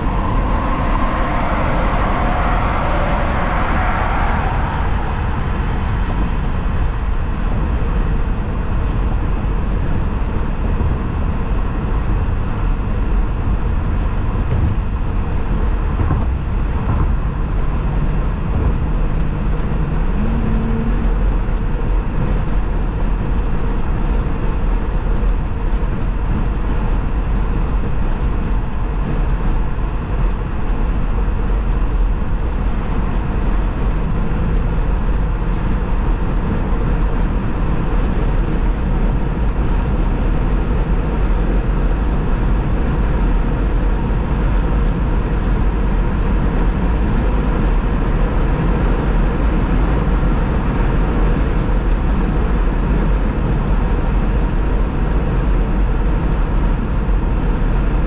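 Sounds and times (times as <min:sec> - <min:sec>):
bright rushing noise: 0:00.0 - 0:07.2
road and tyre noise: 0:00.0 - 0:58.0.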